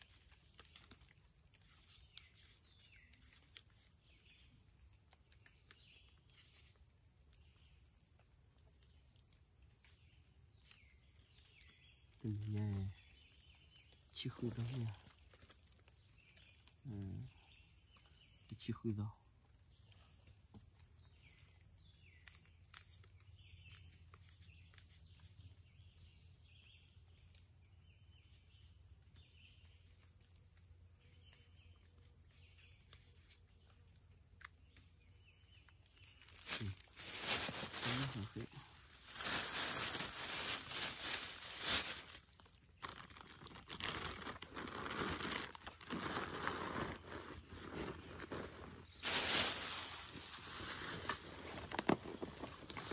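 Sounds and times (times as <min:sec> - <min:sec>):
rustling and handling noises: 0:00.0 - 0:07.5, 0:35.7 - 0:52.9
insects chirring: 0:00.0 - 0:52.9.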